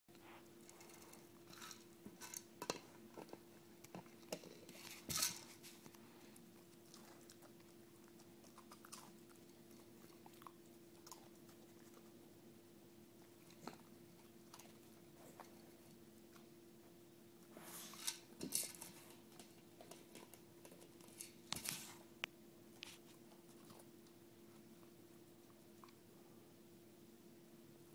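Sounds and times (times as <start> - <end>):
faint steady hum: 0.1 - 27.9.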